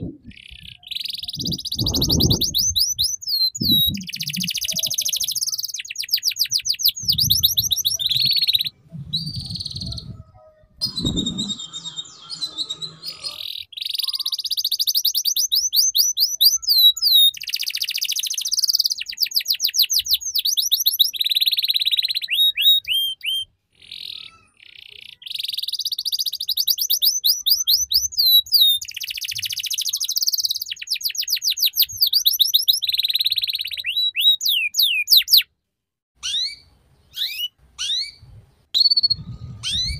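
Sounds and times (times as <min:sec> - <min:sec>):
canary singing trills: 0:00.1 - 0:35.5, 0:36.2 - 0:39.9
low rumble: 0:07.0 - 0:11.7.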